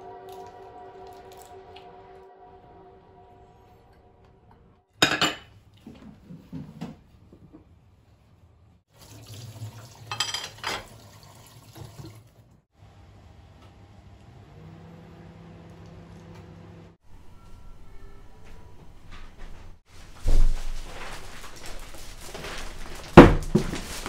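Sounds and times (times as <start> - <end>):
crockery clattering: 5.0 - 5.5, 10.1 - 10.9.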